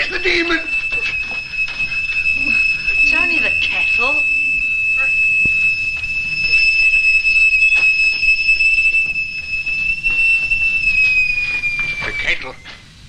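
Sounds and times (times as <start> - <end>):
kettle whistling: 0.0 - 13.0.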